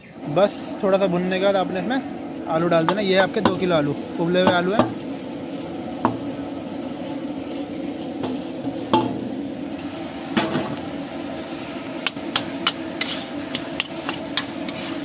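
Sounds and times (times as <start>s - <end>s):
steady hum: 0.0s - 15.0s
metal spatula scraping pan: 12.3s - 15.0s.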